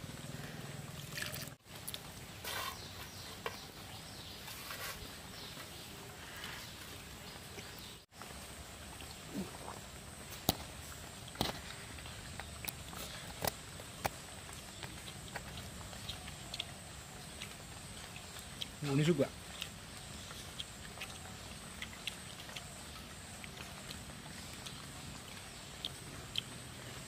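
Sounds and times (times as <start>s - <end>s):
steady outdoor hiss: 0.0s - 27.0s
wet eating smacks and chewing: 8.9s - 27.0s.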